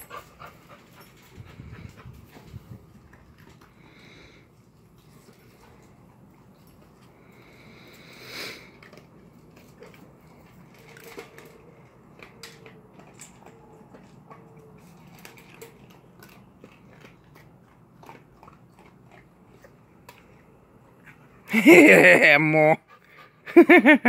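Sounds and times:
dog crunching dry kibble: 0:00.2 - 0:21.6.

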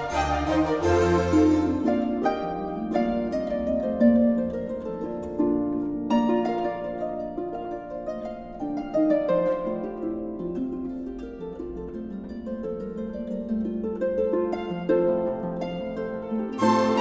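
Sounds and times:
light melody of plucked notes: 0:00.0 - 0:17.0.

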